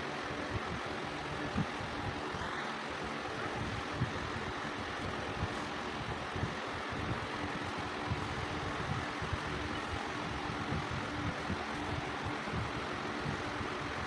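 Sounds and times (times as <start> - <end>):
faint hum: 0.0 - 14.0.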